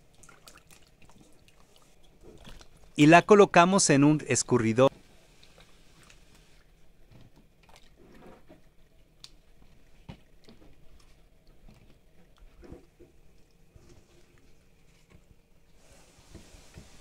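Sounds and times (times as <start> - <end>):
small water splashes: 0.0 - 3.0, 7.4 - 14.6.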